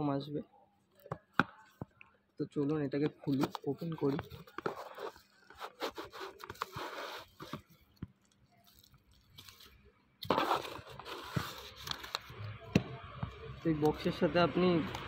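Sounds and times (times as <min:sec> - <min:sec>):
bubble wrap crinkling and rustling: 0:03.3 - 0:12.4
cardboard box being opened: 0:04.2 - 0:07.6, 0:10.2 - 0:12.3.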